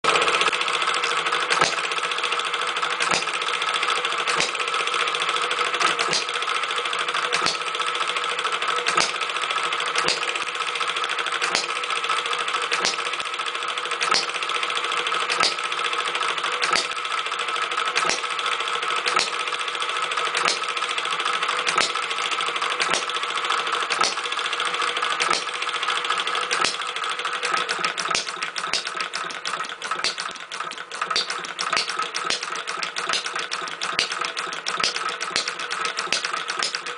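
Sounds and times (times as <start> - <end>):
gas engine clattering: 0.1 - 36.9
engine sharp beat: 3.0 - 3.4, 4.3 - 4.7, 7.3 - 7.8, 10.0 - 10.5, 12.7 - 13.3, 14.0 - 14.4, 16.6 - 17.0, 26.5 - 36.9.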